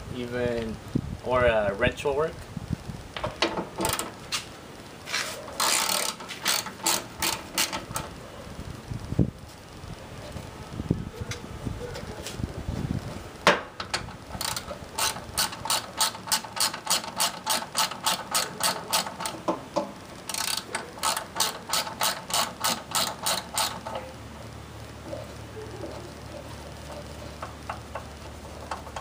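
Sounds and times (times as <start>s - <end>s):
ratchet clicking: 3.5s - 4.2s, 5.6s - 8.2s, 13.8s - 24.1s.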